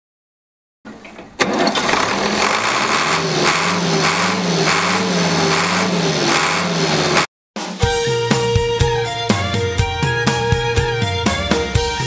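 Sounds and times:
engine starter cranking: 1.1s - 7.3s
tractor engine running: 1.4s - 7.3s.

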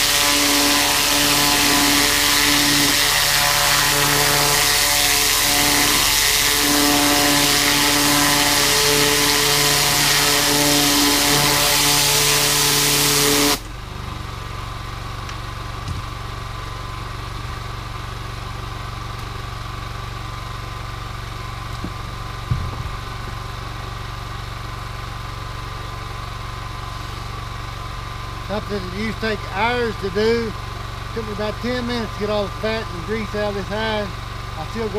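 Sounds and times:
pressure washer spray hiss: 0.0s - 13.6s
engine running: 0.0s - 34.9s.

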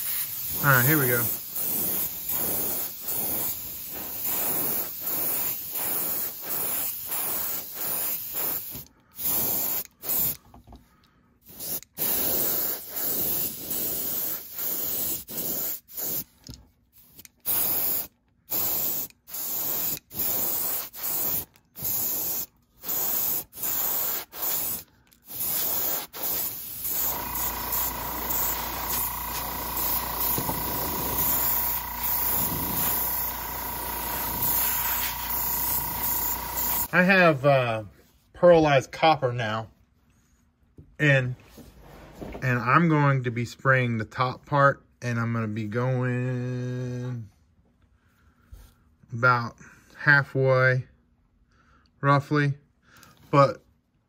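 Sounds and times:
airbrush hissing in bursts: 0.0s - 10.4s, 11.4s - 16.4s, 17.4s - 37.0s.

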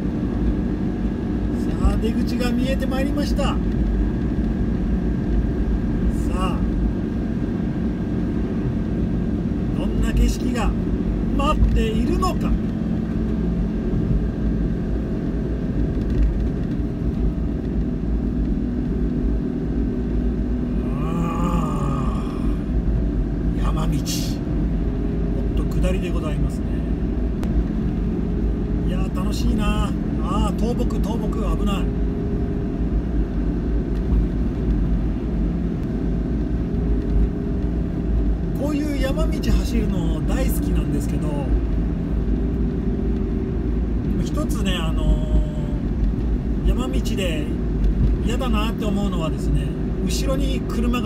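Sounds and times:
car road and engine rumble: 0.0s - 51.0s
man's voice: 44.2s - 45.9s.

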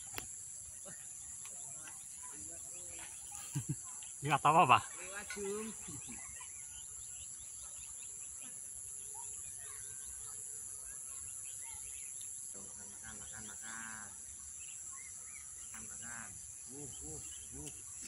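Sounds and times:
bird chirps: 0.0s - 18.0s
high-pitched insect chorus: 0.0s - 18.0s.

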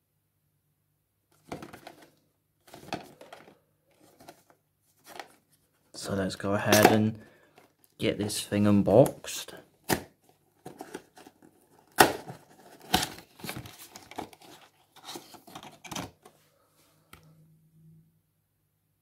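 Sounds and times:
paperboard box being opened: 1.4s - 5.4s, 9.8s - 16.3s
handling of card: 1.4s - 5.8s, 8.9s - 16.3s.

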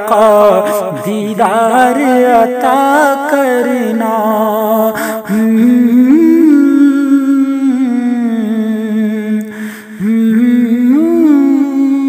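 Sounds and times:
breath: 5.0s - 5.5s, 9.5s - 10.0s
man humming a melody: 9.4s - 12.0s.

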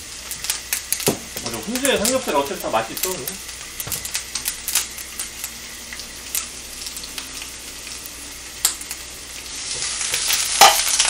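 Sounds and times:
food sizzling in frying pan: 0.0s - 11.0s
utensils clicking against pan: 10.1s - 11.0s.

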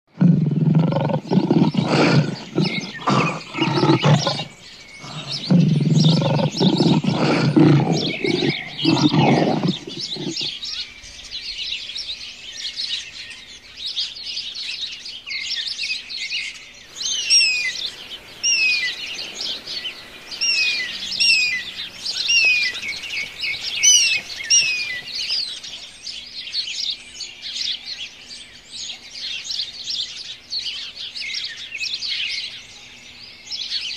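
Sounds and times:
lion roaring: 0.1s - 10.6s, 17.0s - 25.6s
birds chirping: 0.1s - 11.7s, 16.9s - 26.4s
down-slurred whistled bird notes: 17.0s - 25.8s.

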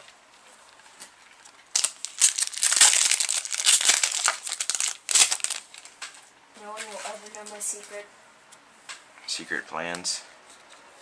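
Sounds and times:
loud foil crackling: 1.4s - 6.2s
foil wrapper tearing and crinkling: 1.7s - 6.0s.

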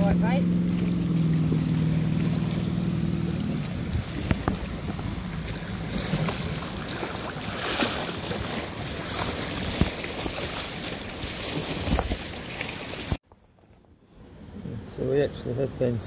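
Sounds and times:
water lapping against rocks: 0.0s - 13.2s
wind on microphone: 3.2s - 7.0s.

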